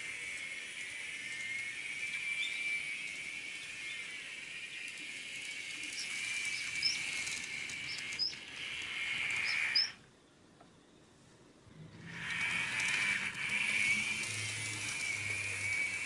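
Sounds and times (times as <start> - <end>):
model train motor whine: 0.0 - 10.0, 11.8 - 16.0.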